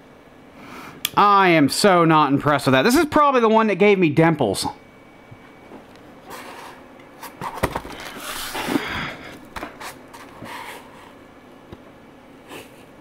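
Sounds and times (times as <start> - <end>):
scraping rustle: 6.3 - 8.8.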